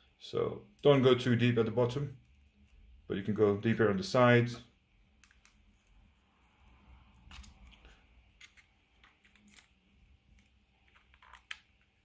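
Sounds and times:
faint clicks and scrapes: 0:05.2 - 0:12.0.

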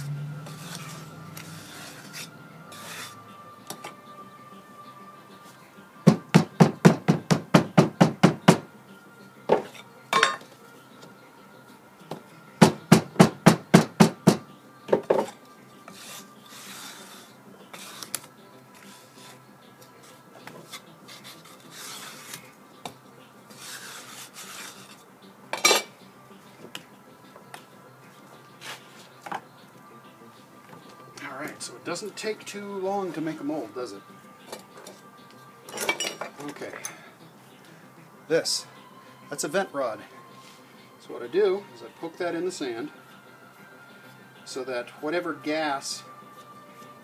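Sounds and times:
sand scraping: 0:00.0 - 0:03.2, 0:15.9 - 0:19.4, 0:20.0 - 0:22.5, 0:23.5 - 0:25.0.

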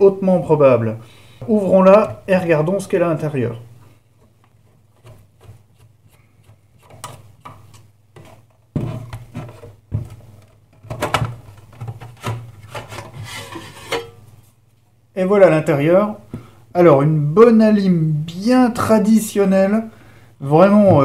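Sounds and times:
metal cover scraping and knocking: 0:08.2 - 0:10.2, 0:10.8 - 0:14.2.

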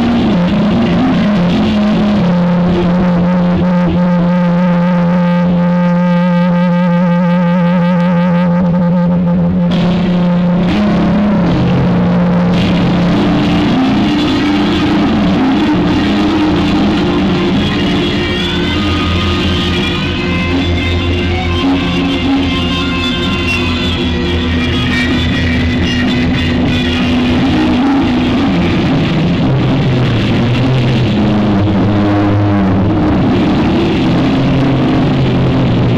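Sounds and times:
electric guitar sustained note: 0:00.0 - 0:35.9
live rock band: 0:09.7 - 0:35.9.

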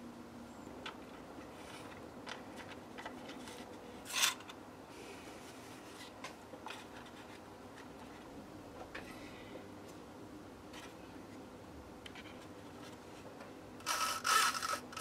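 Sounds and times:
low room hum: 0:00.0 - 0:15.0
rustle: 0:00.9 - 0:10.0.

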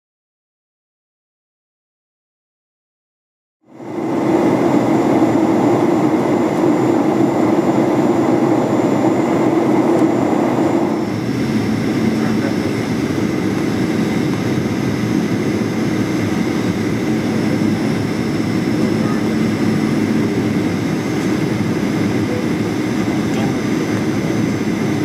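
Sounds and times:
jet engine hum: 0:03.7 - 0:25.0
cabin air rush: 0:03.8 - 0:25.0.

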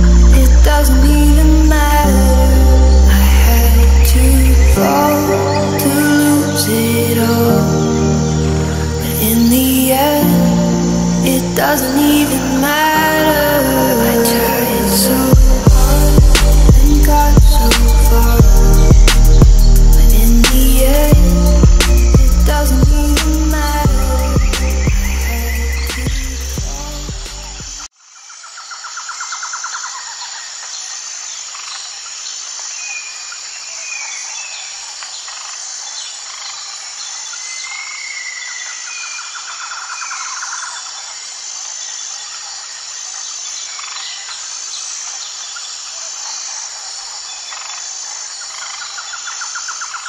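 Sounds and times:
music: 0:00.0 - 0:27.9
rapid pulsed trill: 0:00.0 - 0:27.9
high insect drone: 0:00.0 - 0:28.2
pulsing insect call: 0:00.0 - 0:50.0.

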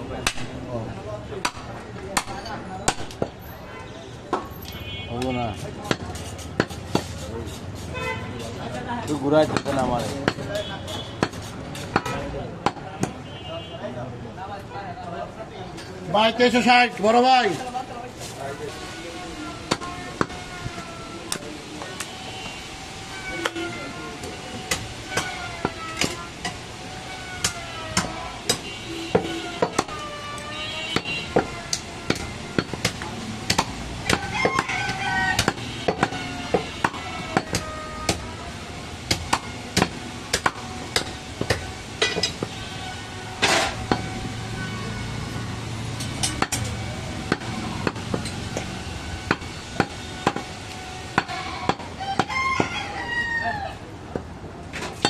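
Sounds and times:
cleaver chopping meat and bone: 0:01.4 - 0:03.3, 0:05.8 - 0:07.8, 0:09.3 - 0:10.6, 0:27.4 - 0:30.0, 0:30.9 - 0:38.3, 0:39.0 - 0:41.7, 0:46.0 - 0:50.5, 0:51.1 - 0:52.3.

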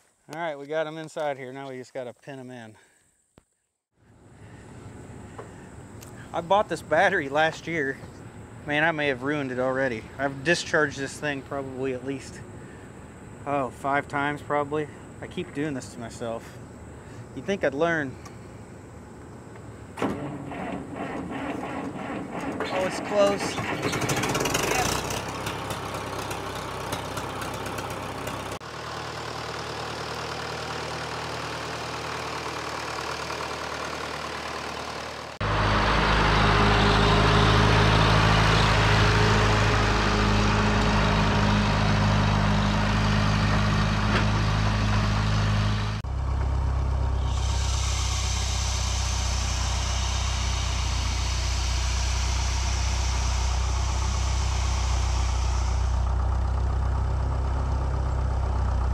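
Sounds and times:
tractor engine running: 0:04.0 - 0:58.9
high squeal of steering belt: 0:20.2 - 0:25.2, 0:47.2 - 0:56.6.

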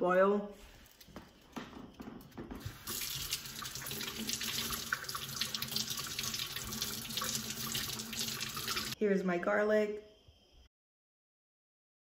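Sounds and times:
water running into steel sink: 0:02.3 - 0:09.0.

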